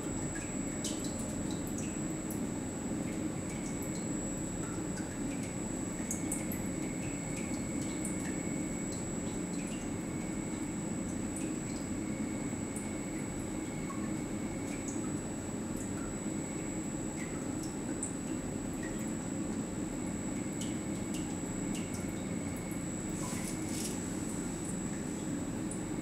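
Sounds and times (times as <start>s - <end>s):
pump humming with high tone: 0.0s - 26.0s.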